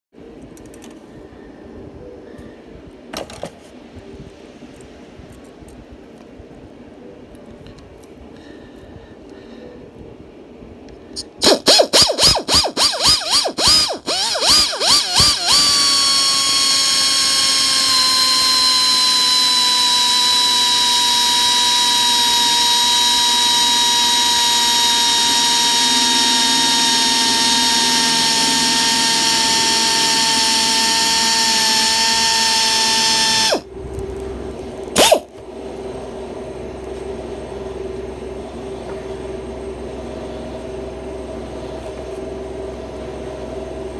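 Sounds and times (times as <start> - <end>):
electric drill boring plastic: 11.4 - 33.6, 35.0 - 35.3.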